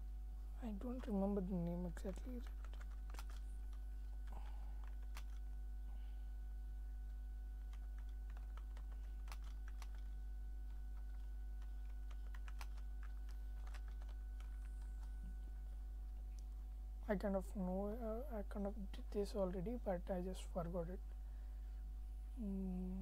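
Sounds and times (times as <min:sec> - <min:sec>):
steady low hum: 0:00.0 - 0:23.0
keyboard typing clicks: 0:01.0 - 0:03.4, 0:04.8 - 0:05.4, 0:07.6 - 0:15.1.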